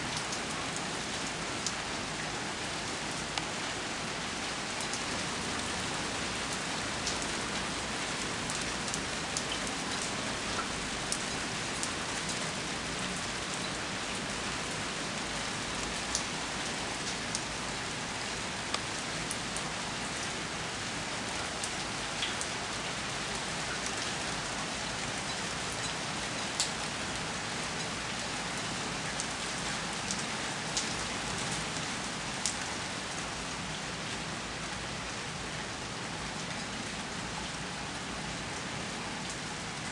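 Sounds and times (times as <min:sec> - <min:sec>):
steady rain hiss: 0:00.0 - 0:39.9
rain drop ticks: 0:08.5 - 0:12.4, 0:15.8 - 0:16.3, 0:18.7 - 0:19.4, 0:21.6 - 0:22.5, 0:25.3 - 0:26.8.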